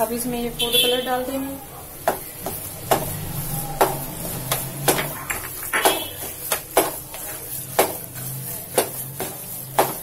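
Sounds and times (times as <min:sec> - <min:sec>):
spoon scraping and knocking pan: 0:02.0 - 0:10.0.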